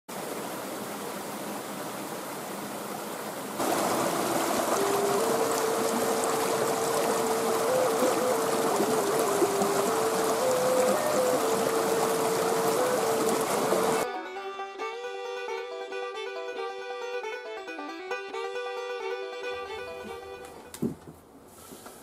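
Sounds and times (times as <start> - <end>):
creek splashing over rocks: 0.1 - 14.0
wooden flute playing slow notes: 3.6 - 17.4.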